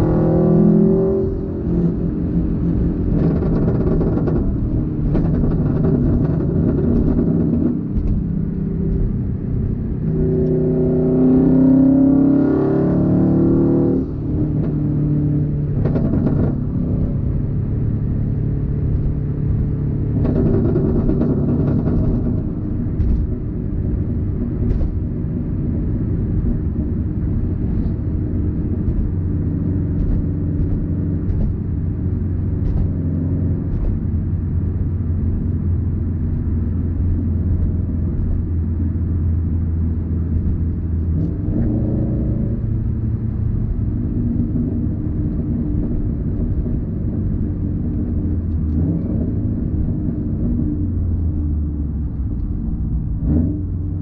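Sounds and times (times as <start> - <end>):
car engine droning: 0.0 - 54.0
exhaust pops: 2.8 - 10.4, 15.7 - 17.6, 18.7 - 54.0.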